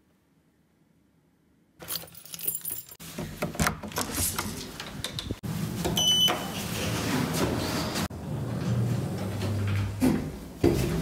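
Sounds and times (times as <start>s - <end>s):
knocks and rustling of handling: 1.8s - 6.0s
lift button beep: 6.0s - 6.6s.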